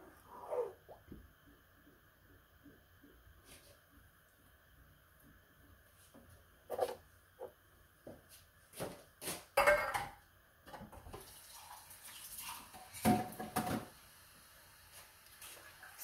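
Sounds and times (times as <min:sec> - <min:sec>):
tap water running: 0:10.7 - 0:16.0.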